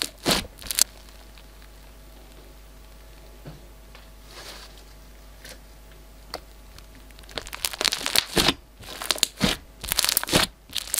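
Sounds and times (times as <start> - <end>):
slime crackling pops: 0.0 - 1.0, 7.2 - 10.9.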